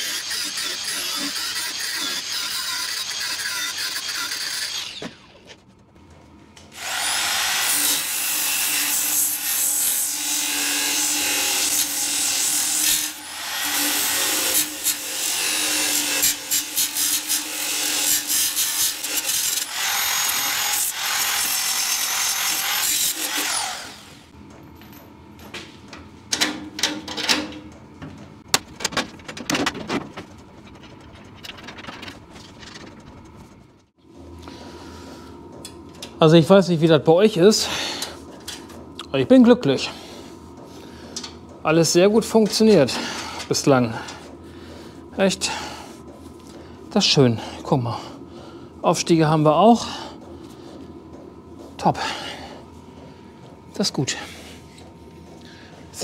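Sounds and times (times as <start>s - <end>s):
angle grinder cutting steel: 0.0s - 5.4s, 6.7s - 24.3s
power tool motor spinning: 0.0s - 5.5s, 6.7s - 8.4s, 12.8s - 24.2s.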